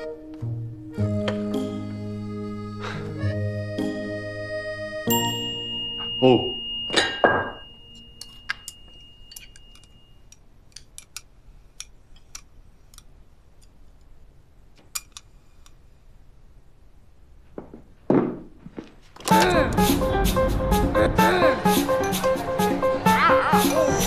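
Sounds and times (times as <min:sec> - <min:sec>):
music: 0:00.0 - 0:08.8, 0:19.3 - 0:24.0.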